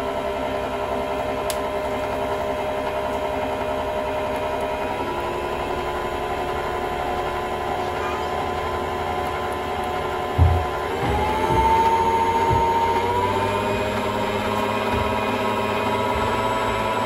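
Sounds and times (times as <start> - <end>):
stand mixer motor humming: 0.0 - 17.0.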